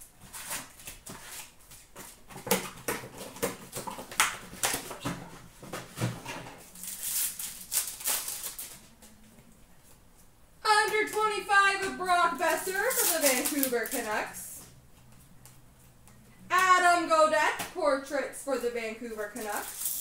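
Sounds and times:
foil wrappers crinkling: 6.7s - 8.9s, 12.2s - 14.4s, 19.2s - 20.0s
cardboard rustling: 12.1s - 14.3s.

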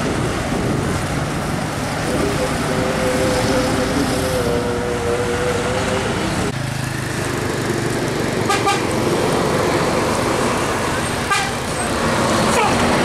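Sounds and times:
road traffic noise: 0.0s - 13.0s
two-tone vehicle horn: 8.5s - 8.9s, 11.3s - 11.6s.

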